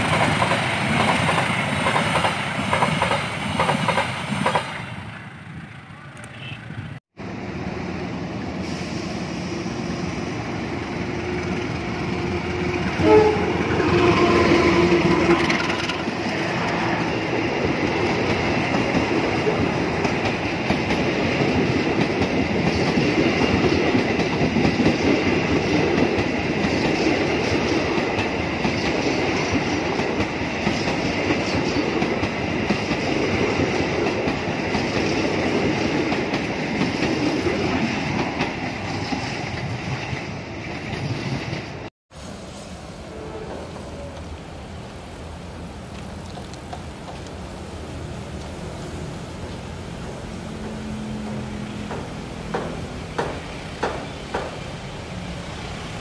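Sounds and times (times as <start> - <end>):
train rumble and wheel clatter: 0.0 - 56.0
locomotive horn: 11.2 - 16.0.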